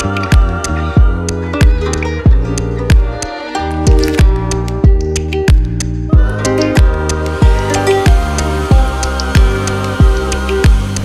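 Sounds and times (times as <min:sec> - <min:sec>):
kick drum beat: 0:00.0 - 0:03.3, 0:03.9 - 0:10.9
sustained chords: 0:00.0 - 0:11.0.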